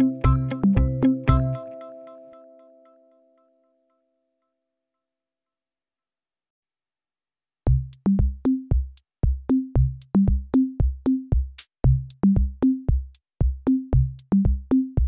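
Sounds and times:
drum-machine beat: 0:00.0 - 0:01.6, 0:07.7 - 0:15.0.

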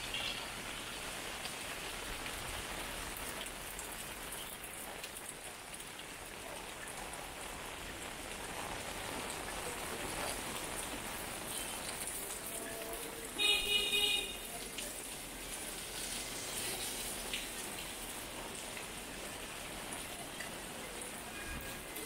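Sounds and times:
rain falling on wet street: 0:00.0 - 0:22.0
vehicle horn honking: 0:12.8 - 0:14.5.

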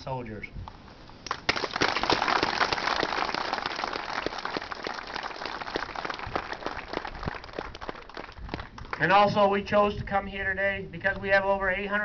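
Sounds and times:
crowd applauding: 0:01.4 - 0:09.1.

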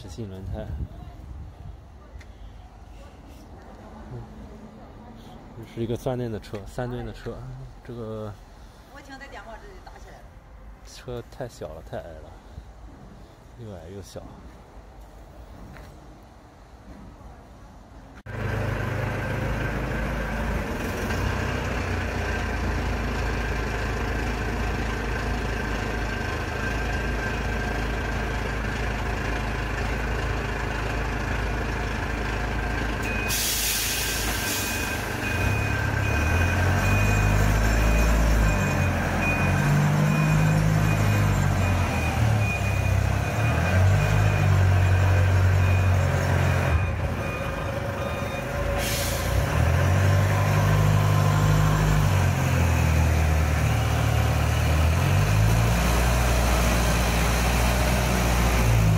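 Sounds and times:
forklift engine idling: 0:18.3 - 0:58.9
brief hiss: 0:33.3 - 0:35.0
warning beeper short beeps: 0:46.7 - 0:49.1.

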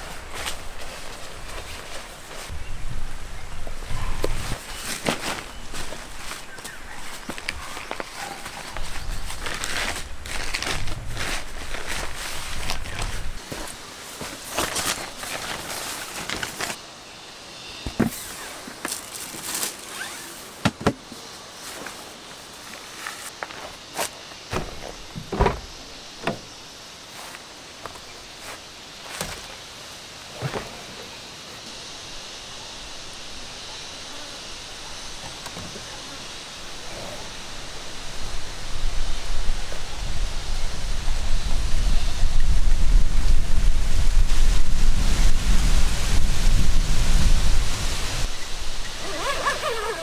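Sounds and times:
outdoor hiss: 0:00.0 - 0:50.0
wind buffeting microphone: 0:02.5 - 0:04.6, 0:08.6 - 0:13.4, 0:37.2 - 0:50.0
car door clunks and knocks: 0:24.5 - 0:26.5.

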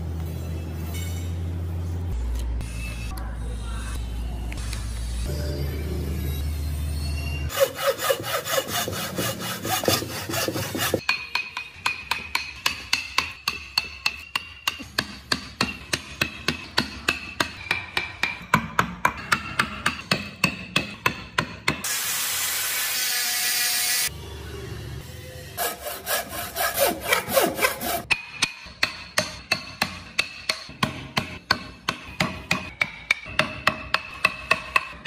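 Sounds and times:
angle grinder sanding wood: 0:07.5 - 0:11.0, 0:25.6 - 0:28.1.

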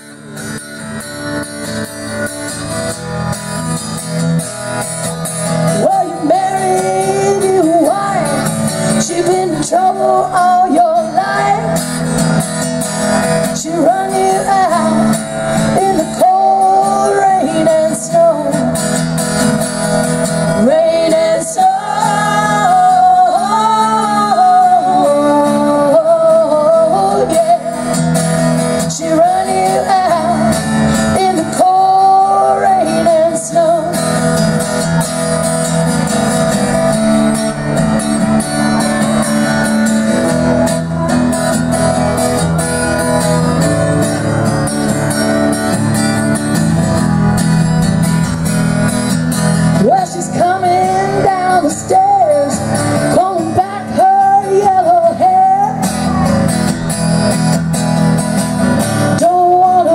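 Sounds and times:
acoustic guitar strumming: 0:00.0 - 0:59.9
woman singing folk song: 0:01.4 - 0:59.9
second woman singing: 0:05.7 - 0:11.9, 0:13.4 - 0:18.8, 0:20.5 - 0:28.0, 0:28.8 - 0:34.2, 0:49.7 - 0:56.6, 0:59.1 - 0:59.9.

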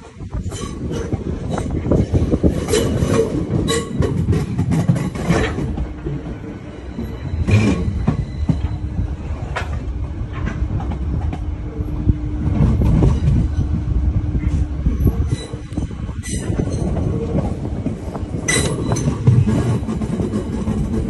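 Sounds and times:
train wheels rumbling on rail: 0:00.0 - 0:21.0
wheels clacking over joints: 0:00.4 - 0:06.4.

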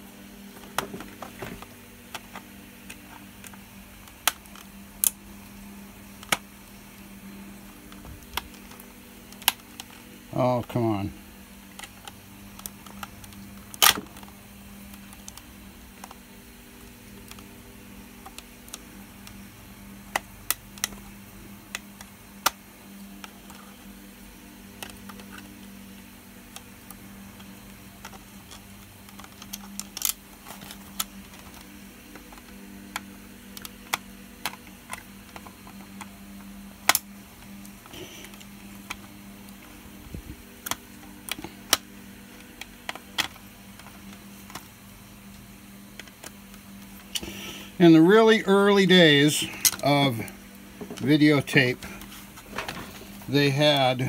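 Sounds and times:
low hum: 0:00.0 - 0:54.0
plastic cassette handling taps: 0:06.2 - 0:06.5.

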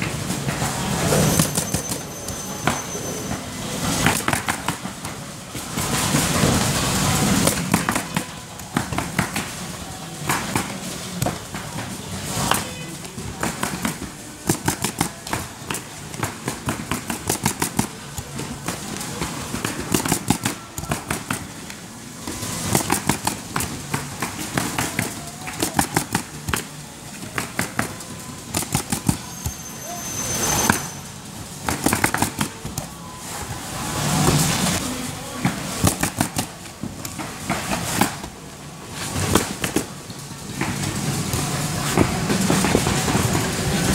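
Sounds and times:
roofing nailer firing: 0:03.9 - 0:05.2, 0:05.8 - 0:12.6, 0:13.4 - 0:21.8, 0:22.4 - 0:29.6, 0:31.6 - 0:32.8, 0:35.4 - 0:38.4, 0:39.0 - 0:40.0.

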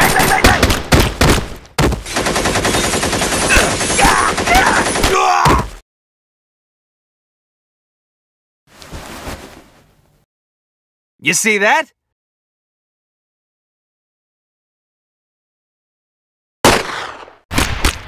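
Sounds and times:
automatic rifle fire: 0:16.6 - 0:18.0.

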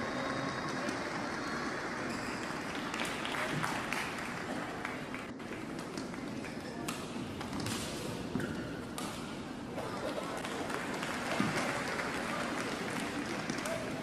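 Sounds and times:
crowd applause: 0:00.0 - 0:05.6, 0:09.8 - 0:14.0
spectator chatter: 0:00.0 - 0:07.3, 0:09.5 - 0:14.0.

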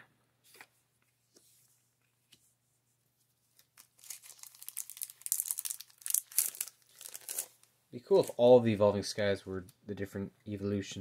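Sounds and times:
foil wrapper crackling: 0:03.7 - 0:07.7.

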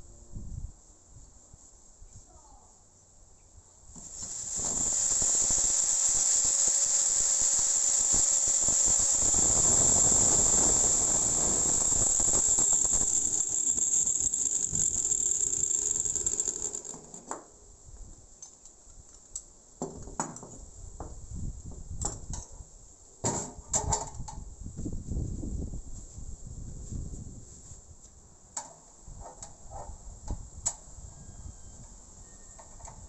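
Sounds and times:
angle grinder cutting steel: 0:04.0 - 0:17.1.

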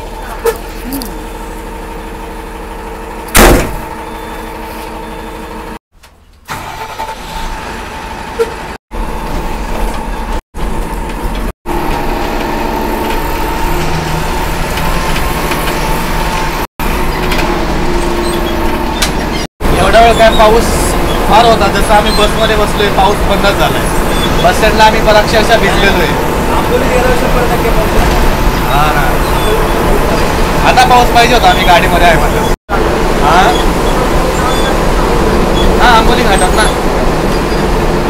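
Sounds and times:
bus engine and road noise: 0:00.0 - 0:38.0
loud thump: 0:03.3 - 0:04.0.

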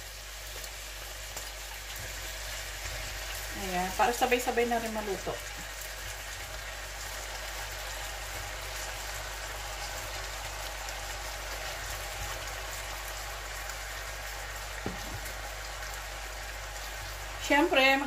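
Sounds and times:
liquid sizzling in a frying pan: 0:00.0 - 0:18.0
light knock: 0:14.8 - 0:15.2.

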